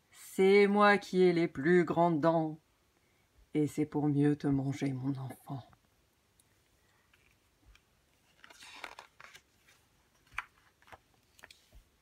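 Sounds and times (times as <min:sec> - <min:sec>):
faint page clicks: 0:06.9 - 0:11.9
page turning rustle: 0:07.1 - 0:12.0.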